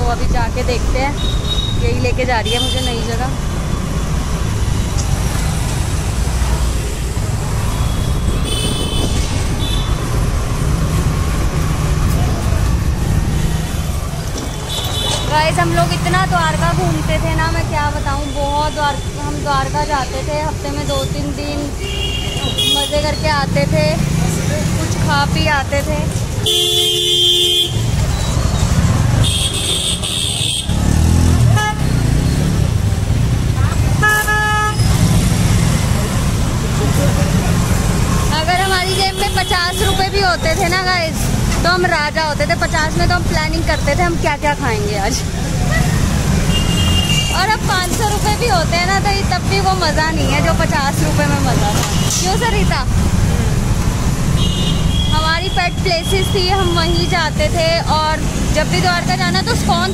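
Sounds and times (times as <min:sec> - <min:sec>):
steady low street rumble: 0:00.0 - 0:59.9
vehicle horn honking: 0:26.4 - 0:27.9, 0:31.5 - 0:31.9, 0:34.0 - 0:34.9, 0:46.5 - 0:47.4.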